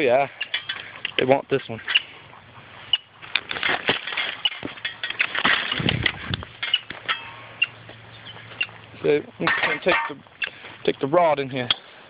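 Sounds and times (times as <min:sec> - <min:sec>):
dry branches crackling and snapping: 0:03.3 - 0:07.2.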